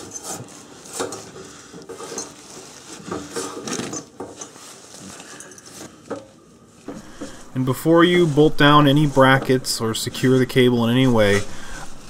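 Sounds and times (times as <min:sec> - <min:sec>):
cable scraping against metal: 0:06.9 - 0:12.0.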